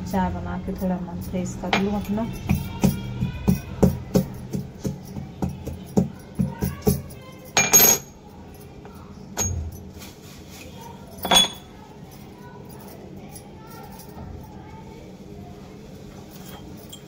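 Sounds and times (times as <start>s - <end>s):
metal utensils clattering: 0.8s - 5.0s, 5.8s - 8.2s, 9.4s - 11.7s, 16.3s - 17.0s.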